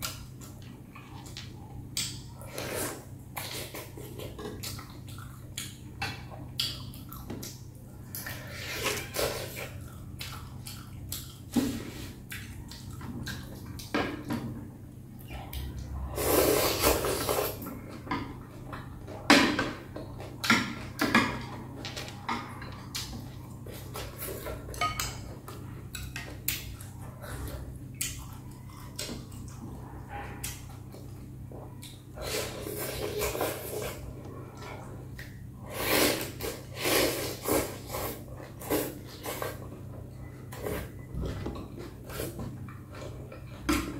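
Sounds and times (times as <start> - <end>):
faint low hum: 0.0 - 43.9
slurping and chewing: 6.6 - 13.9, 15.2 - 17.8, 31.8 - 43.7.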